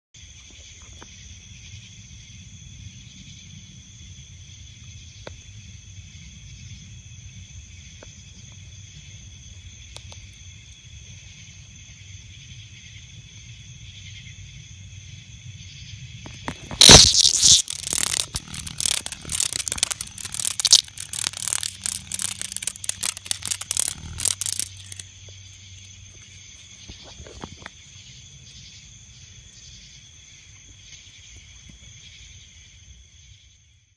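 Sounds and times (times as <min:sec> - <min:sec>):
night insects chorus: 0:00.2 - 0:33.9
cicada buzzing harshly: 0:16.3 - 0:26.3.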